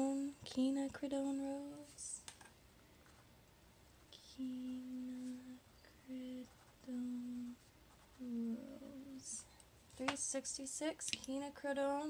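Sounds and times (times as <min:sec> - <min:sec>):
woman humming: 0:08.2 - 0:09.3.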